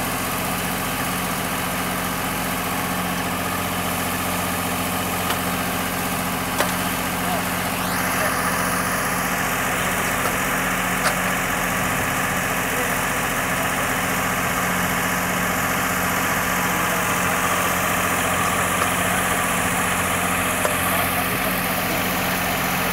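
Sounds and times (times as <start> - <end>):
diesel tractor engine running: 0.0 - 22.9.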